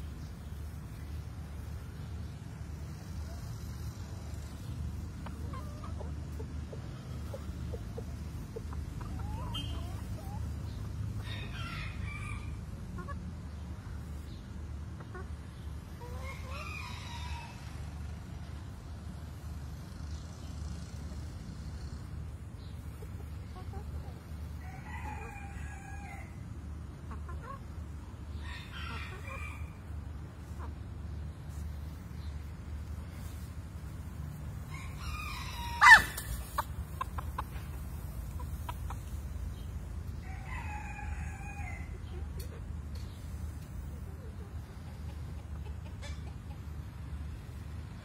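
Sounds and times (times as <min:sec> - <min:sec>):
chickens clucking: 0:00.0 - 0:48.0
rooster crowing: 0:34.7 - 0:36.2.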